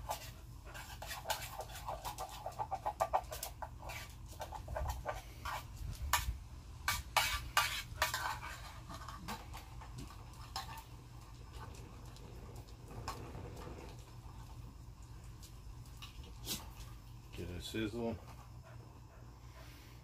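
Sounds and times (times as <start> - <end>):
utensil scraping in metal cup: 0.0 - 6.3, 6.9 - 10.9.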